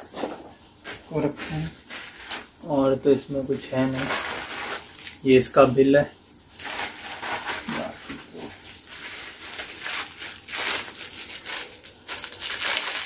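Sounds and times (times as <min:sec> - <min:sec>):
plastic packaging crinkling: 0:03.8 - 0:05.2, 0:06.6 - 0:13.0.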